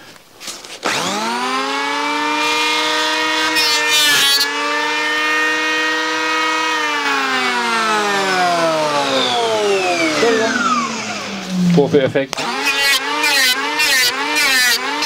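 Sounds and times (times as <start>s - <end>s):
electric planer motor whine: 0.8s - 15.0s
planer blades rasping wood: 0.8s - 15.0s.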